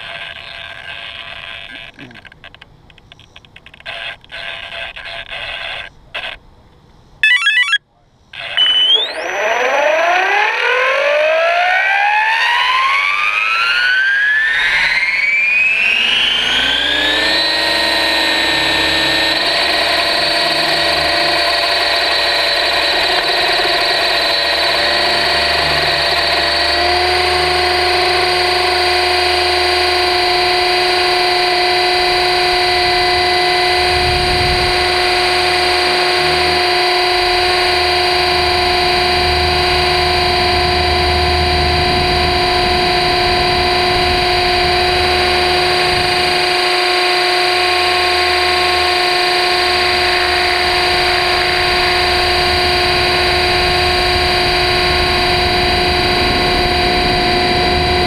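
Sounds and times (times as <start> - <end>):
short clicks and beeps: 1.4 - 6.4, 7.2 - 7.8, 8.4 - 9.6
helicopter motor and rotor whine: 8.4 - 58.0.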